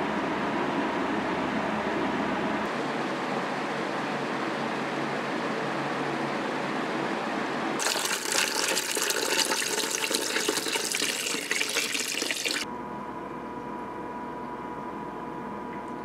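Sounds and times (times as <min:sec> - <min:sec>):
water splashing in a bucket: 0:07.8 - 0:12.6.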